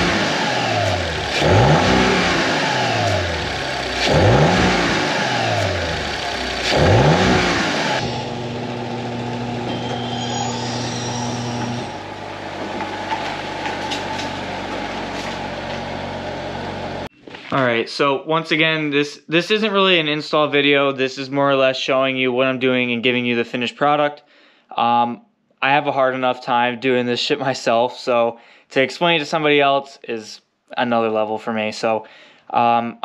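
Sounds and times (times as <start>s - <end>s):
car engine revving and idling: 0.0s - 17.1s.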